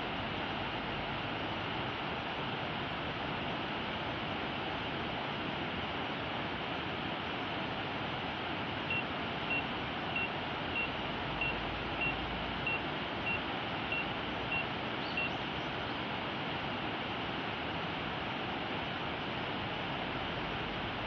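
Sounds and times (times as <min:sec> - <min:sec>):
short high warning beeps: 0:08.9 - 0:15.3.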